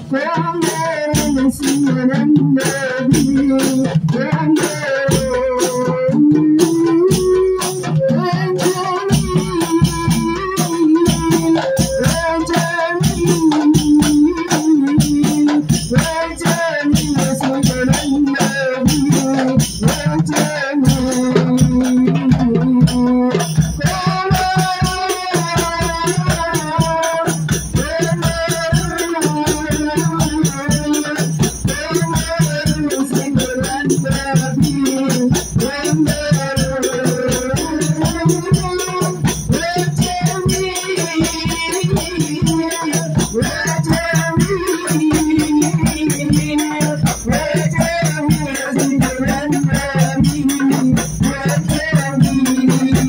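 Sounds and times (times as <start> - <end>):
bass drum: 0.0 - 53.0
frame drums beaten: 0.0 - 53.0
small hand drum: 0.0 - 53.0
woman singing into microphone: 0.0 - 53.0.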